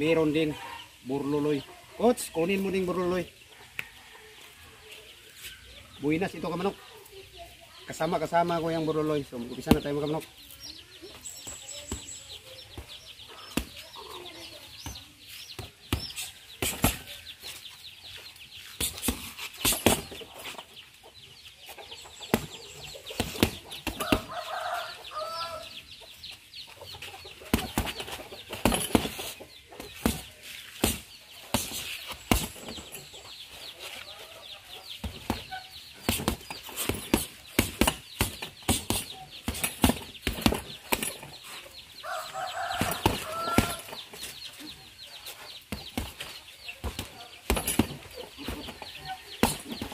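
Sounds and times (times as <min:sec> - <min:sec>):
boxing gloves hitting punching bag: 0:12.8 - 0:13.8, 0:15.6 - 0:17.1, 0:18.8 - 0:20.2, 0:22.3 - 0:24.3, 0:27.5 - 0:32.9, 0:35.0 - 0:41.3, 0:42.8 - 0:43.9, 0:45.7 - 0:48.8, 0:49.4 - 0:49.9.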